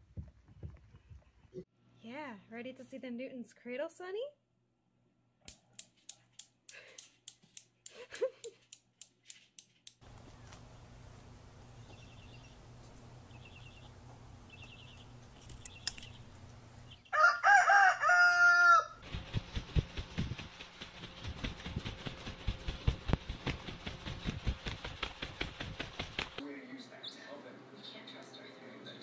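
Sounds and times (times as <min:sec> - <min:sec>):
rooster crowing: 0:17.0 - 0:19.0
macaw wings flapping: 0:19.0 - 0:26.4.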